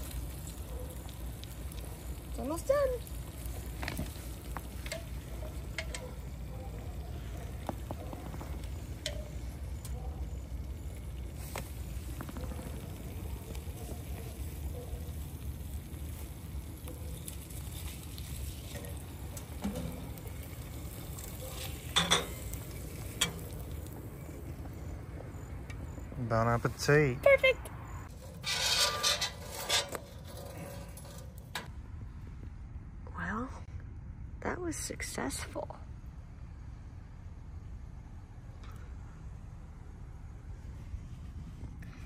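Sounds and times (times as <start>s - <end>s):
egg sizzling in a skillet: 0.0s - 6.4s, 10.4s - 24.6s
clinks against a pan: 4.8s - 6.1s, 21.9s - 23.5s.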